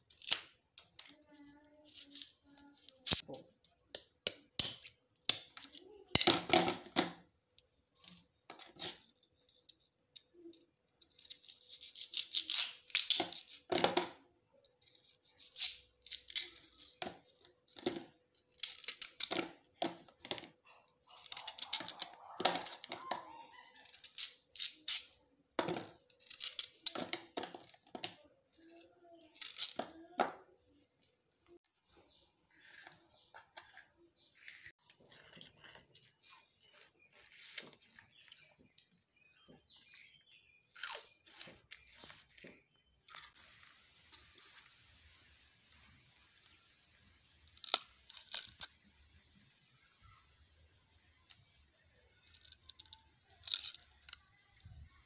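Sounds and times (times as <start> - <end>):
knife scraping sugarcane rind: 0.1 - 0.5, 1.8 - 3.3, 8.6 - 13.7, 14.8 - 17.8, 18.4 - 19.4, 21.0 - 25.2, 26.0 - 27.0, 32.4 - 38.6, 40.0 - 44.7, 47.4 - 48.8, 52.2 - 54.2.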